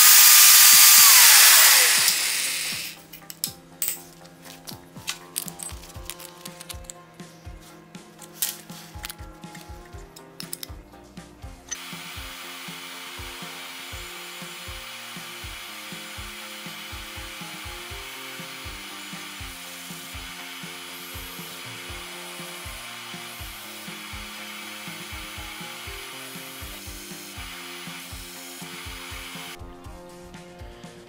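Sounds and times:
hole saw grinding metal tube: 0:00.0 - 0:03.2, 0:11.7 - 0:29.6.

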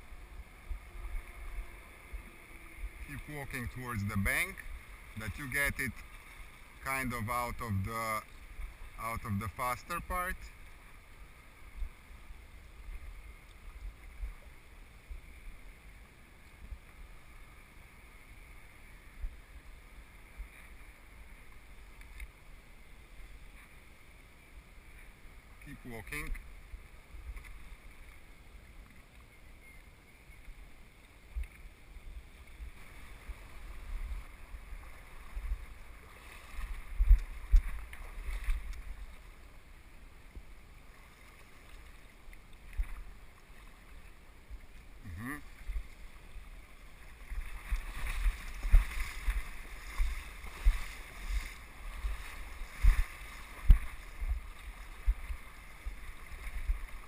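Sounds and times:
river current rushing: 0:00.0 - 0:13.3, 0:32.6 - 0:57.0
water splashing around wading person: 0:32.4 - 0:39.6, 0:40.4 - 0:57.0
wind and handling thumps on microphone: 0:36.5 - 0:39.1, 0:47.3 - 0:55.9.

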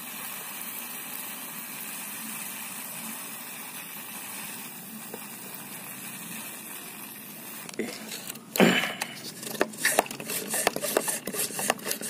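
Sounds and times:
pressure sprayer hissing: 0:00.0 - 0:12.0.

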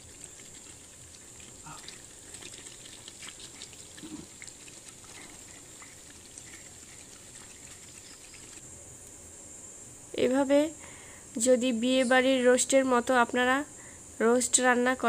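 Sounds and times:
gravy simmering with bubbling pops: 0:00.0 - 0:09.2
faint hiss: 0:00.0 - 0:15.0.

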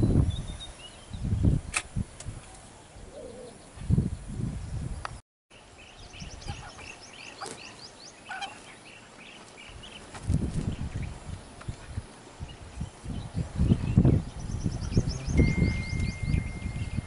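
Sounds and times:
birds chirping: 0:05.5 - 0:17.0.

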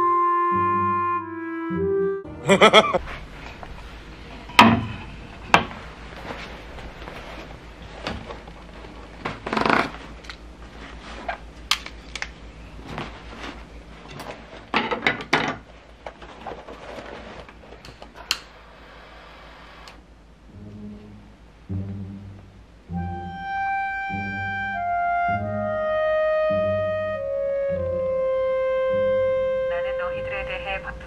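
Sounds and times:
canvas tool roll rustling: 0:05.7 - 0:11.5, 0:12.6 - 0:14.7, 0:15.6 - 0:17.9.

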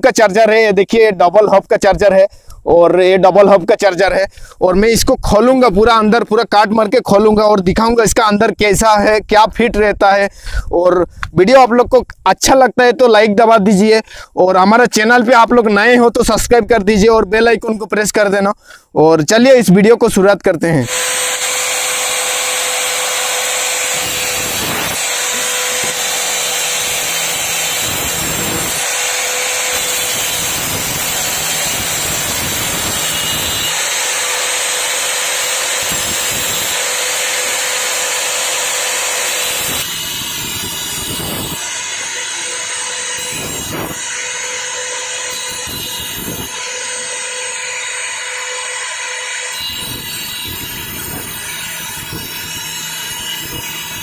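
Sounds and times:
angle grinder cutting plastic: 0:20.8 - 0:54.0.

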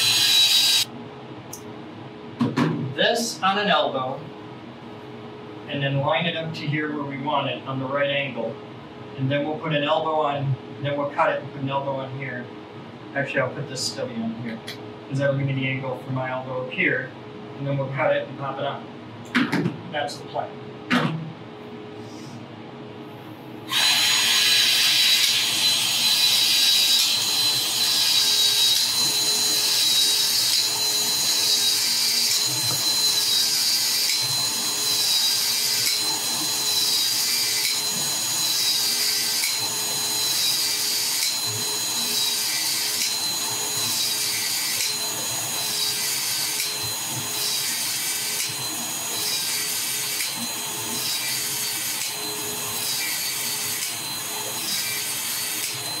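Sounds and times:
motor whine: 0:00.0 - 0:00.9, 0:23.6 - 0:56.0.

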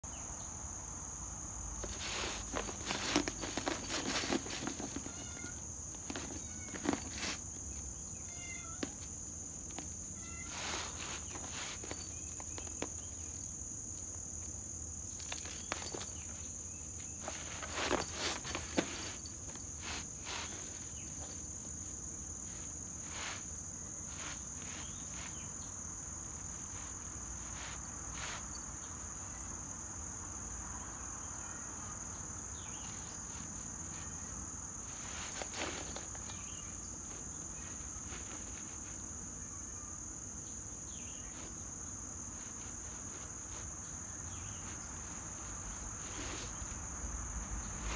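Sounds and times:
insects trilling: 0:00.1 - 0:47.9
cat claws scratching a rug: 0:01.8 - 0:25.6, 0:26.2 - 0:29.5, 0:32.6 - 0:39.1, 0:41.2 - 0:47.9
claws scrabbling on concrete: 0:01.8 - 0:29.4, 0:32.5 - 0:39.1, 0:41.2 - 0:47.9.

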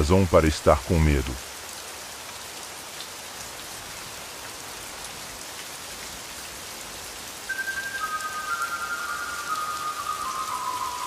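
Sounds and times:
steady rain falling: 0:00.0 - 0:11.0
held high tone: 0:07.5 - 0:11.0.

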